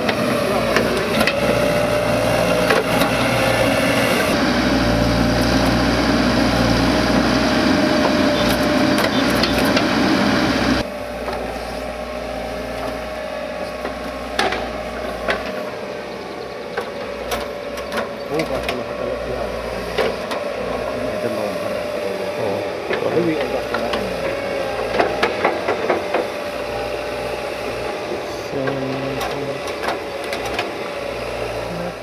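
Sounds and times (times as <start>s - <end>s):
excavator engine drone: 0.0s - 32.0s
soil scraping: 10.8s - 32.0s.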